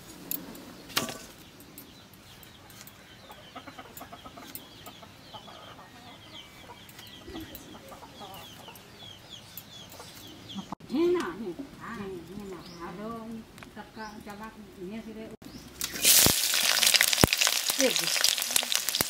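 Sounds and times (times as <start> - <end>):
chickens peeping: 0.6 - 10.8.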